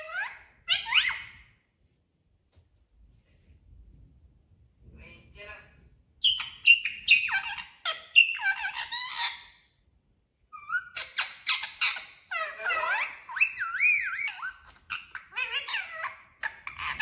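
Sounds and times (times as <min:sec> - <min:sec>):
parrot high-pitched calls: 0:00.0 - 0:01.6, 0:06.2 - 0:09.7, 0:10.5 - 0:17.0.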